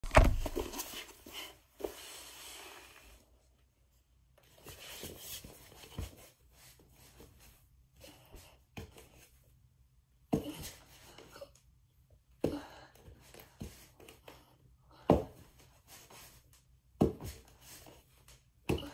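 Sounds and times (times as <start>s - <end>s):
hands and feet landing: 0.0s - 1.2s.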